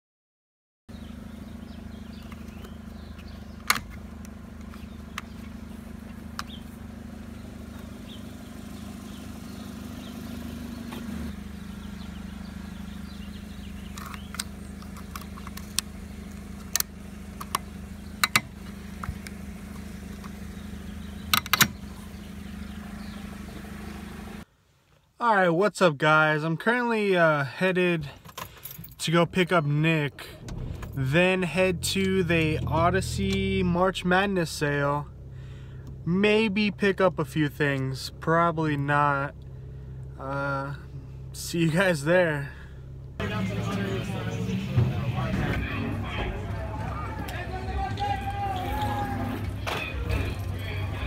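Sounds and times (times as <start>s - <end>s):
car engine running: 0.9s - 24.5s, 27.6s - 51.0s
sharp clicks and knocks: 13.9s - 20.4s, 21.3s - 21.8s.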